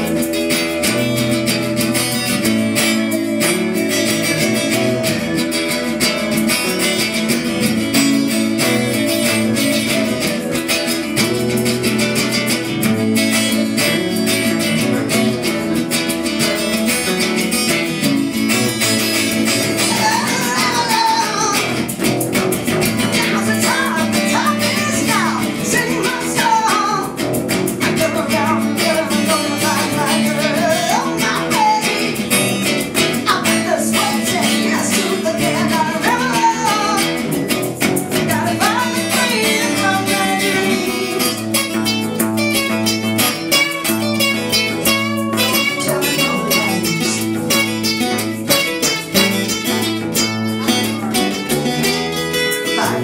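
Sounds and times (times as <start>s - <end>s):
woman singing: 0.0s - 11.4s, 18.8s - 41.9s, 43.6s - 48.6s, 52.3s - 53.0s
acoustic guitar strumming: 0.0s - 53.0s.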